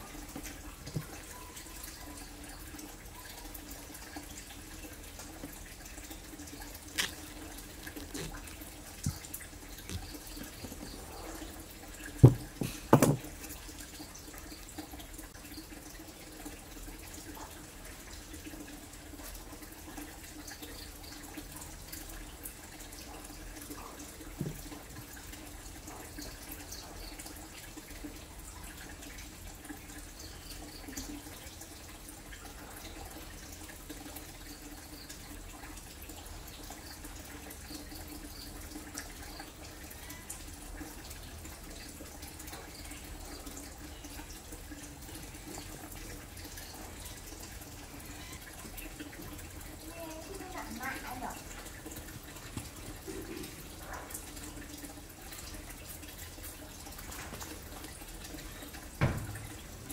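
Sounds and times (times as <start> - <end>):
running water trickle: 0.0 - 59.9
soft knock: 12.2 - 13.2.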